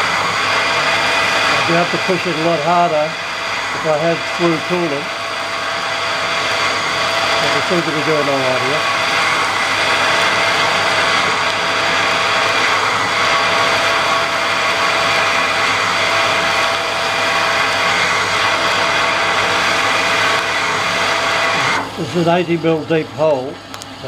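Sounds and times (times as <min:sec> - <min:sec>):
drill cutting steel: 0:00.0 - 0:23.8
lathe drive tone: 0:00.0 - 0:24.0.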